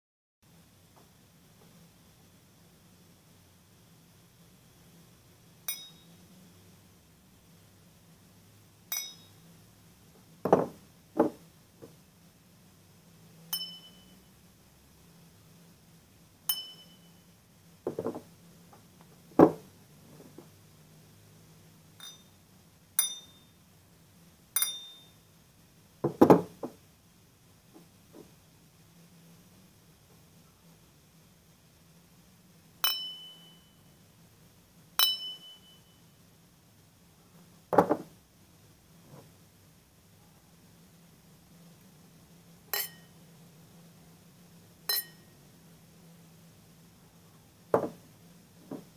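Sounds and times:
crystal glasses clinking: 5.7s - 6.1s, 8.9s - 9.4s, 13.5s - 14.2s, 16.5s - 17.2s, 22.0s - 22.4s, 23.0s - 23.5s, 24.6s - 25.1s, 32.8s - 33.7s, 35.0s - 36.0s, 42.8s - 43.2s, 44.9s - 45.3s
glasses set down on hard surface: 10.5s - 11.4s, 17.9s - 18.2s, 37.7s - 38.1s, 47.7s - 48.0s.

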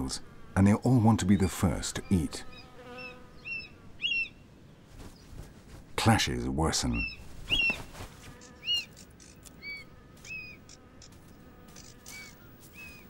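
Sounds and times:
wings flapping: 4.9s - 6.0s, 7.0s - 13.0s.

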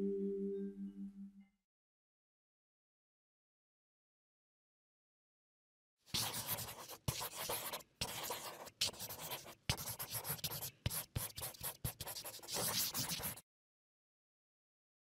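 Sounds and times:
marker scratching on paper: 6.1s - 13.4s.

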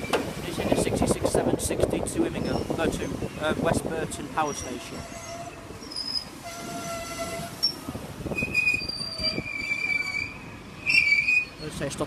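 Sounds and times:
high wheel squeal: 2.4s - 3.3s, 4.4s - 11.9s.

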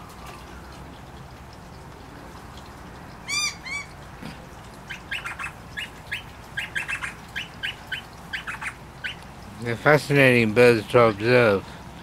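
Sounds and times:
birds calling: 3.0s - 9.8s.

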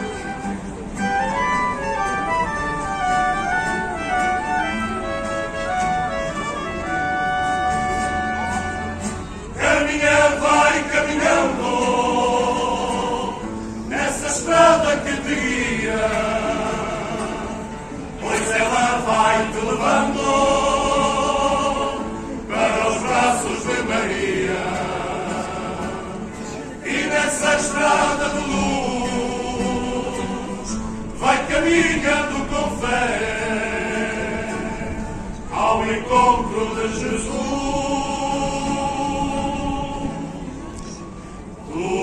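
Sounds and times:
guitars: 0.0s - 42.0s
men singing together: 9.6s - 26.2s, 26.8s - 40.4s, 41.7s - 42.0s.

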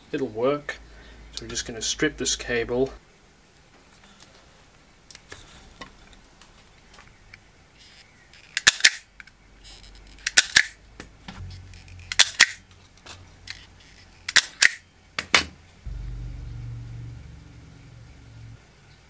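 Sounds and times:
low hum: 11.4s - 14.2s, 15.8s - 19.0s.

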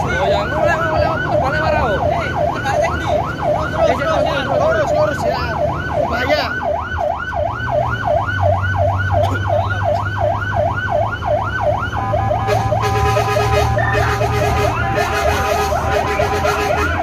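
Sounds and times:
electronic emergency siren: 0.0s - 17.0s
vehicle engine droning: 0.0s - 17.0s.

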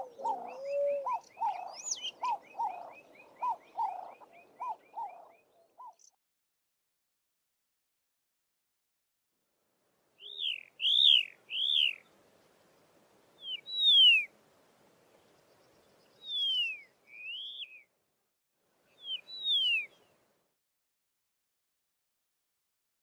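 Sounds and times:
lark whistled calls: 0.0s - 6.0s, 10.2s - 12.1s, 13.4s - 14.3s, 16.2s - 17.9s, 19.0s - 20.1s.

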